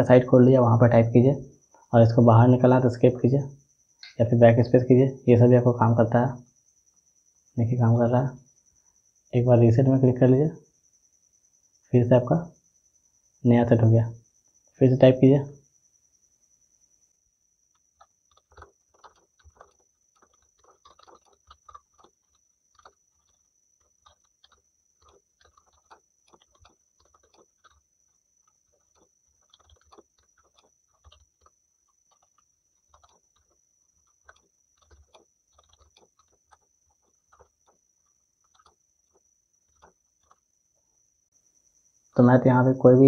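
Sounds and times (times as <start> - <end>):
keyboard typing clicks: 17.7 - 40.4.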